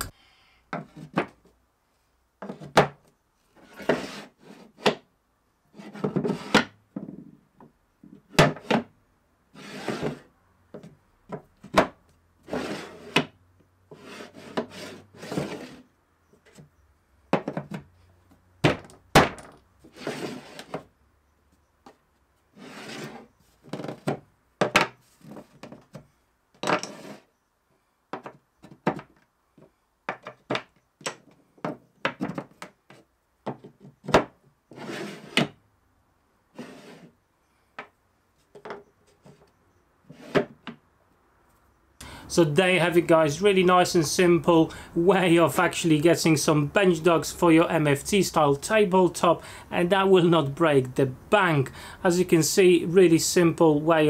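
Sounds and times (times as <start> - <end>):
wooden blocks scraping on plywood: 2.4 - 2.9, 3.5 - 5.0, 5.7 - 7.2, 9.5 - 16.8, 19.8 - 20.9, 21.9 - 27.4, 31.6 - 35.6, 36.5 - 37.2, 38.4 - 40.7
sharp knocks and clunks: 17.3 - 17.9, 18.6 - 19.6, 23.7 - 27.0.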